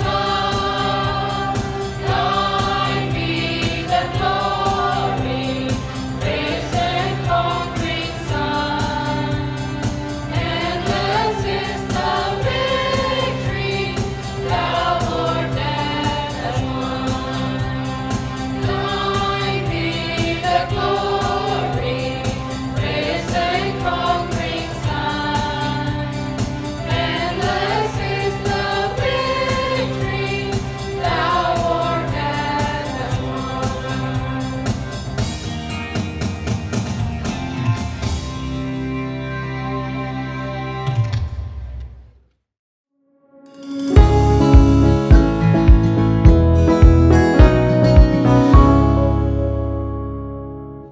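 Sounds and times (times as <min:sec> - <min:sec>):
choir singing: 0:00.0 - 0:35.1
electronic keyboard low notes: 0:44.0 - 0:50.9.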